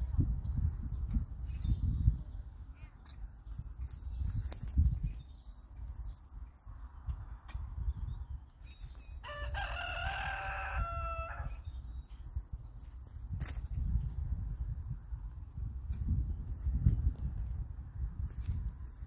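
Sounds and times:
small bird chirping: 0.6s - 9.2s
rooster crowing: 9.2s - 11.6s.

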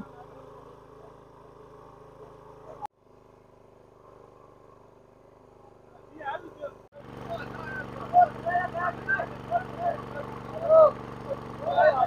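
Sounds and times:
generator engine hum: 0.0s - 12.0s.

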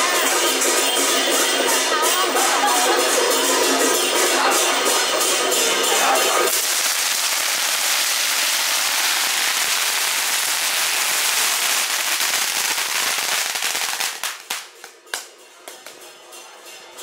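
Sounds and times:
firecrackers crackling and banging: 3.7s - 16.1s.

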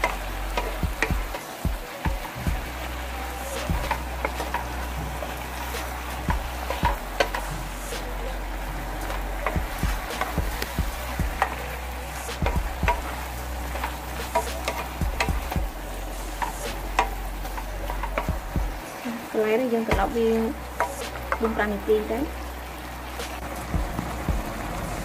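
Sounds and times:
food sizzling in a frying pan: 0.0s - 25.0s
low steady hum: 0.0s - 25.0s
wooden spatula scraping a pan: 2.7s - 18.8s.

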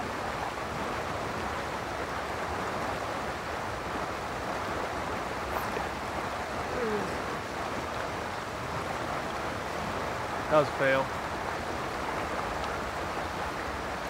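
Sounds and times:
river water rushing over riffles: 0.0s - 14.0s.

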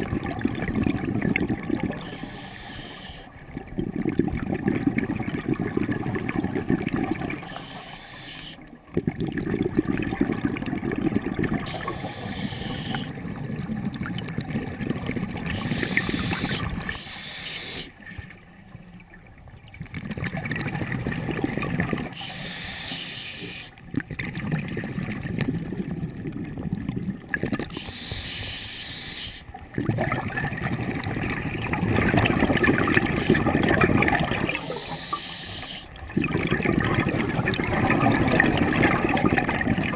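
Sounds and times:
regulator inhalation hiss: 2.0s - 3.3s, 7.4s - 8.6s, 11.7s - 13.1s, 15.5s - 18.0s, 22.2s - 23.7s, 27.7s - 29.5s, 34.6s - 35.9s
diver exhaling bubbles underwater: 8.9s - 18.3s, 19.8s - 22.7s, 23.5s - 28.3s, 28.9s - 39.9s.

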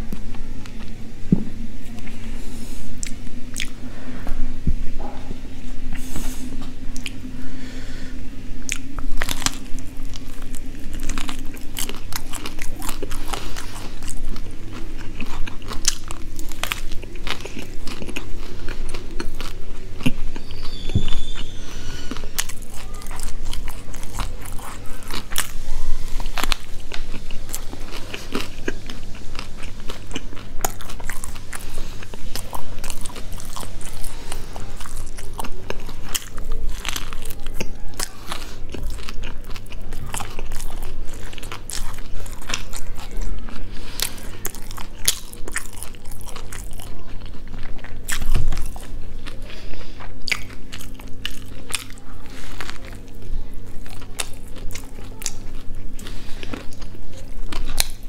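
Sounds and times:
biting and chewing crunchy food: 1.8s - 58.0s.

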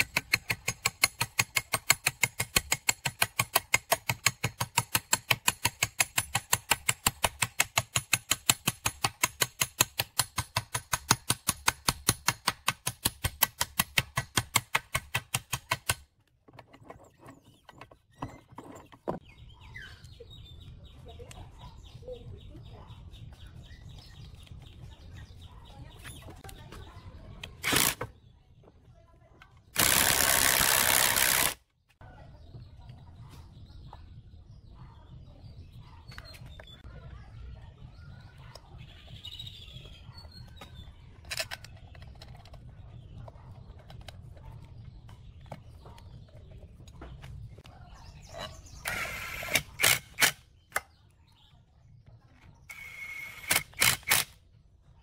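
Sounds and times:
cordless drill whirring: 29.8s - 31.6s, 48.8s - 50.3s, 52.7s - 54.3s.

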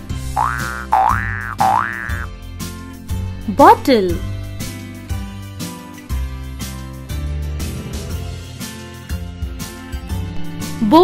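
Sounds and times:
children's background music: 0.0s - 11.0s
cartoon boing sound effects: 0.3s - 2.3s.

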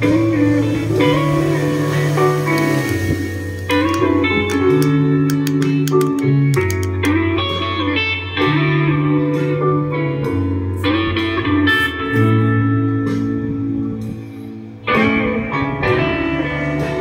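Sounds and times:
bass line: 0.0s - 17.0s
guitar music: 0.0s - 17.0s.

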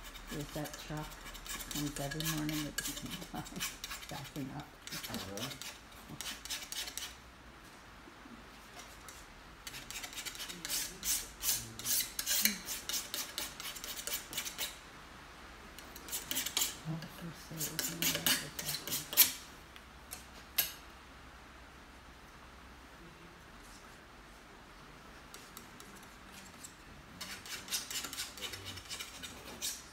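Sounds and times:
paint scraping on canvas: 0.0s - 7.2s, 17.5s - 19.4s, 25.3s - 29.9s.

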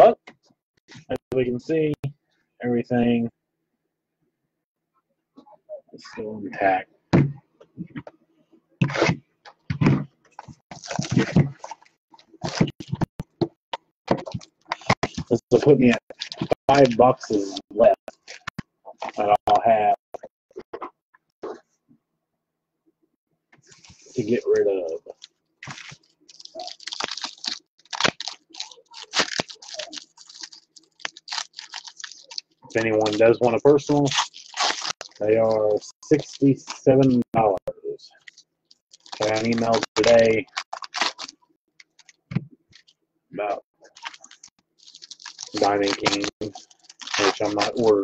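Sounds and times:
wrappers rustling and crinkling: 25.1s - 33.4s, 34.0s - 35.3s, 38.2s - 42.2s, 43.9s - 48.0s.

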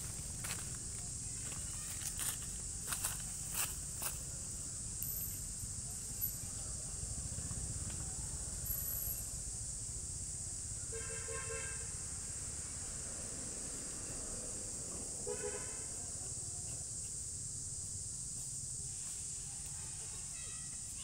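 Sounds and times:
vehicle horn toots: 10.9s - 12.0s, 15.2s - 15.9s.

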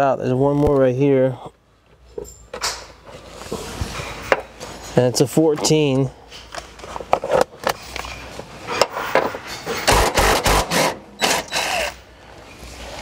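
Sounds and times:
metal hardware clicks and knocks: 2.0s - 3.0s
impact driver hammering: 9.7s - 12.0s.

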